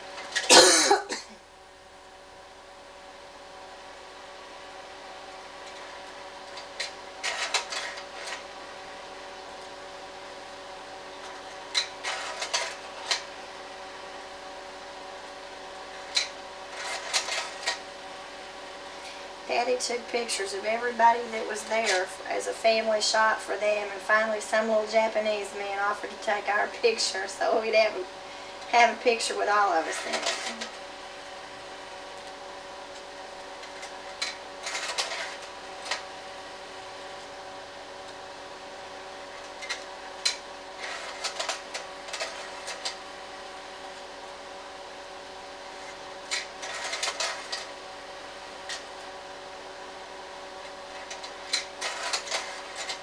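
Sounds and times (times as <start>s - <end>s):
projector motor and fan hum: 0.0s - 53.0s.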